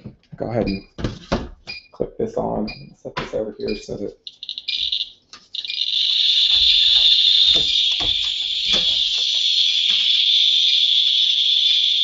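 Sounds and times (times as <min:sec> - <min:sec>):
geiger counter crackling: 0:02.6 - 0:12.0.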